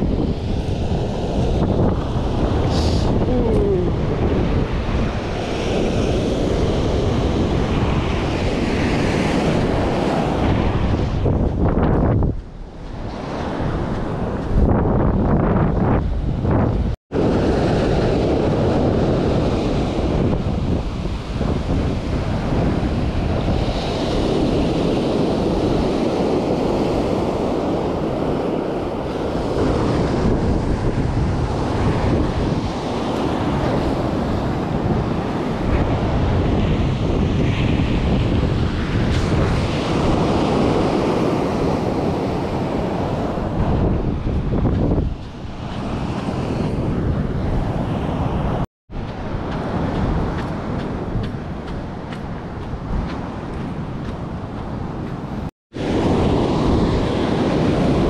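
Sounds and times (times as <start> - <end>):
wind buffeting microphone: 0.0 - 58.0
surf breaking on beach: 16.4 - 58.0.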